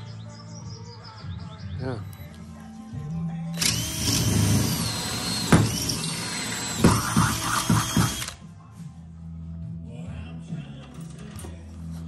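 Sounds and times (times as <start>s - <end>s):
cordless drill boring through wood: 3.6s - 8.4s.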